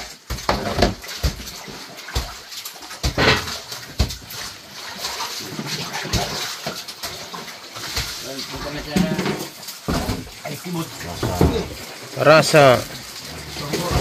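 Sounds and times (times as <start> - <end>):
water sloshing and splashing: 0.0 - 14.0
fish thudding against wooden hold: 3.0 - 4.4, 8.9 - 10.4, 11.0 - 11.9.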